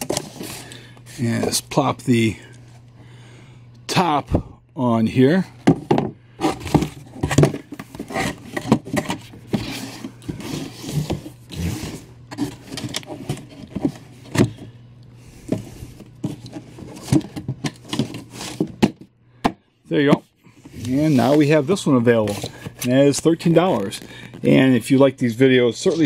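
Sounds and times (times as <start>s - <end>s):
cardboard scraping and rubbing: 6.4s - 14.4s, 15.4s - 18.8s, 20.7s - 21.6s.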